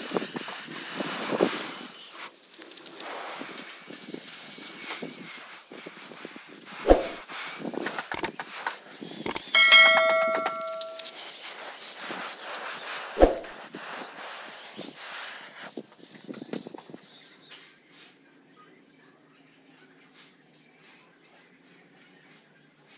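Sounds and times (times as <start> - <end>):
steady hiss: 0.0 - 16.8
metal ringing like a bell: 9.6 - 11.2.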